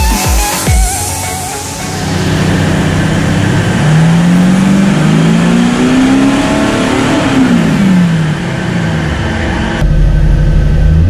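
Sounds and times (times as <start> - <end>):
diesel engine revving: 0.9 - 11.0.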